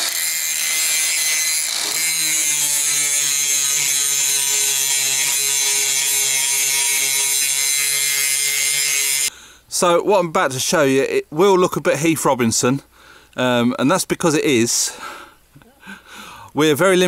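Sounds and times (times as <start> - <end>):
angle grinder grinding steel: 0.0 - 9.3.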